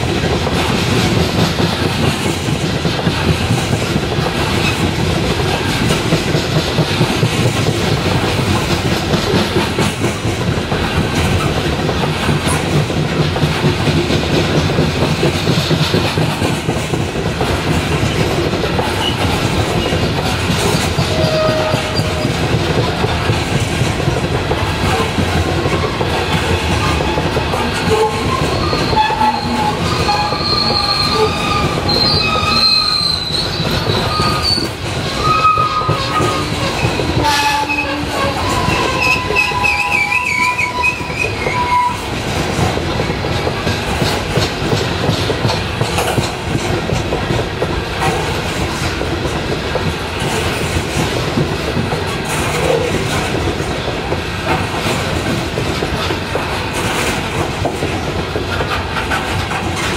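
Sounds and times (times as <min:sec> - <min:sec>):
train wheels rumbling and clattering: 0:00.0 - 0:59.9
high-pitched wheel squeals: 0:28.0 - 0:42.0.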